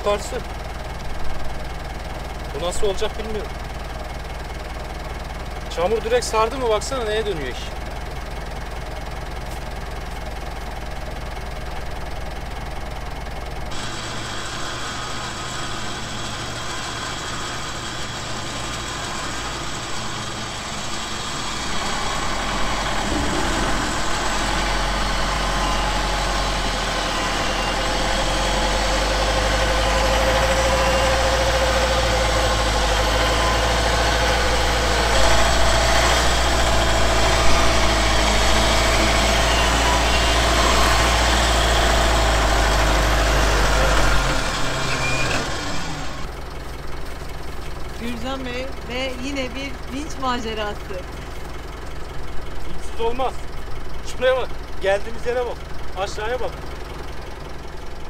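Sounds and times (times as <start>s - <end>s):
pickup truck engine running: 0.0s - 58.0s
winch whine: 13.4s - 46.4s.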